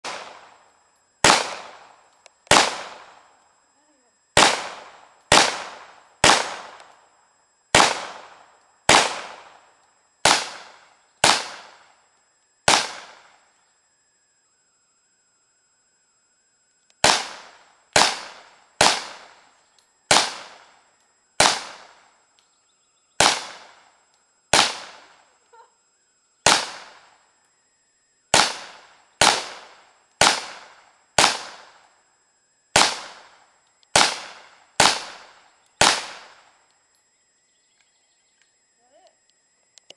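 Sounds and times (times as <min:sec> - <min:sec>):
submachine gun single shots: 0:00.0 - 0:00.6, 0:01.2 - 0:03.3, 0:04.4 - 0:07.0, 0:07.7 - 0:11.9, 0:12.6 - 0:13.4, 0:17.0 - 0:19.5, 0:20.1 - 0:20.8, 0:21.4 - 0:22.1, 0:23.2 - 0:23.9, 0:24.5 - 0:25.2, 0:26.4 - 0:27.2, 0:28.3 - 0:31.8, 0:32.7 - 0:36.6.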